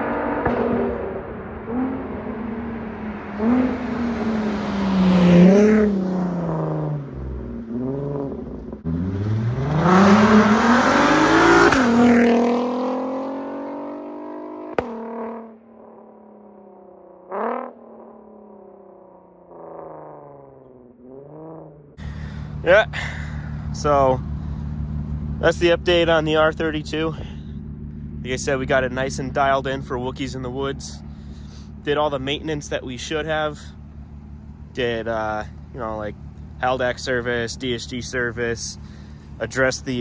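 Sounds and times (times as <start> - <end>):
car engine revving: 0.0 - 40.0.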